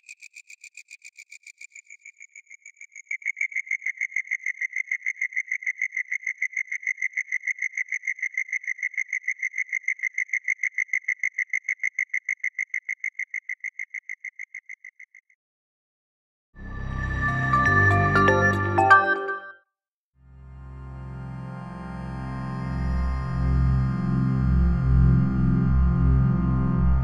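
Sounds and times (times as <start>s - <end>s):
synthesized cricket chirps: 0.0s - 15.4s.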